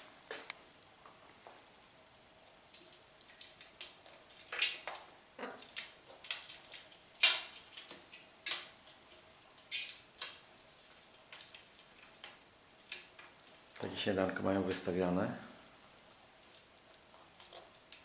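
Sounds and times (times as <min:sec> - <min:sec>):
beaks and claws clicking on bowl: 0:02.7 - 0:13.8, 0:16.4 - 0:18.0.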